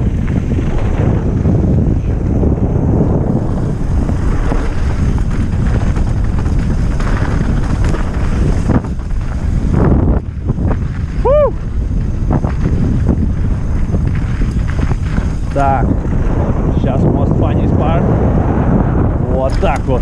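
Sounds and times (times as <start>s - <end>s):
bike knocking and rattling: 0.0s - 18.0s, 19.3s - 20.0s
wind rushing over microphone: 0.0s - 20.0s.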